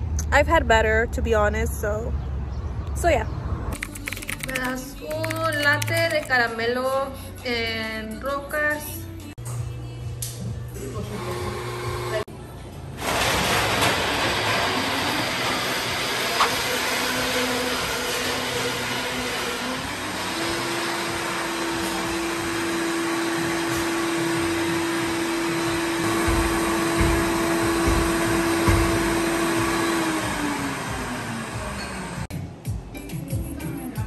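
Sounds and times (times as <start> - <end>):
blender running: 11.1 - 12.3, 13.0 - 32.3.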